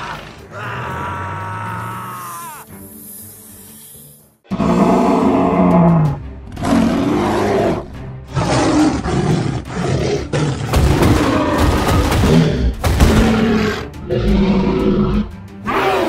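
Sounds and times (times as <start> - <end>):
dinosaur roars: 4.5 - 16.0.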